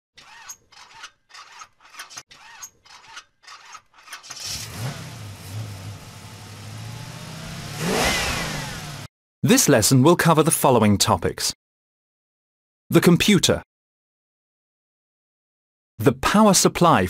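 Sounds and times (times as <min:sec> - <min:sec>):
car engine cranking: 0:04.0 - 0:09.1
car engine idling and revving: 0:04.4 - 0:09.1.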